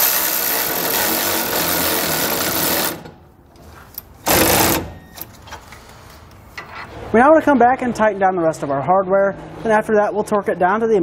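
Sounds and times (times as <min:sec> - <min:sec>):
power tool spinning socket: 0:00.0 - 0:03.2.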